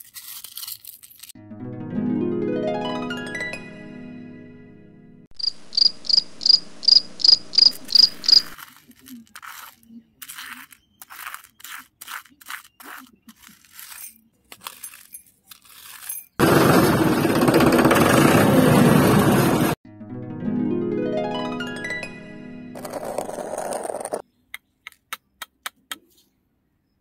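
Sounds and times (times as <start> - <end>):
plucked harp-like music: 1.4 - 5.3, 19.9 - 22.8
high cricket-like chirp: 5.4 - 8.6
knife scraping rice grains: 8.6 - 16.6.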